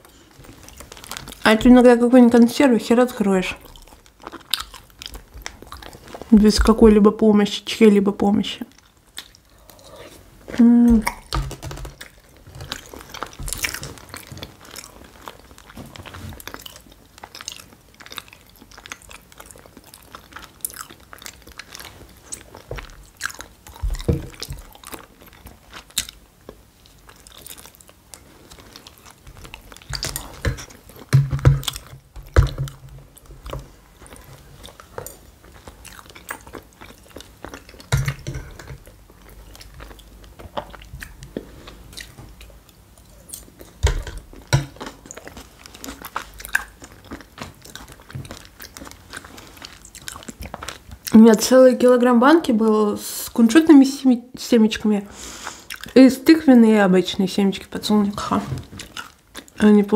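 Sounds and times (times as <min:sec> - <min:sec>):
person chewing food: 0:00.0 - 0:01.5, 0:03.6 - 0:06.4, 0:08.7 - 0:51.2, 0:55.2 - 0:56.0, 0:58.6 - 0:59.6
wet mouth sounds: 0:09.1 - 0:15.0.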